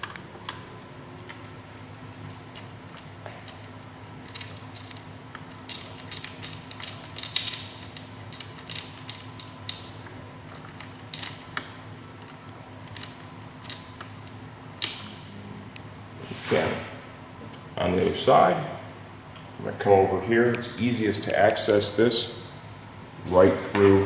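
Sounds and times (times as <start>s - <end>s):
steady low hum: 0.0s - 24.0s
metal parts clicking: 4.2s - 9.9s, 10.5s - 11.4s, 12.8s - 14.1s.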